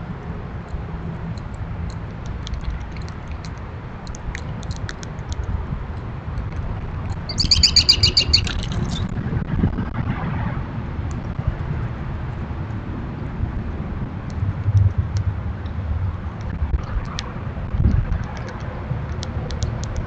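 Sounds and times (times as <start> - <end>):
steady low rumble: 0.0 - 20.0
birds chipping: 7.2 - 9.1
bird rapid trill: 7.3 - 9.1.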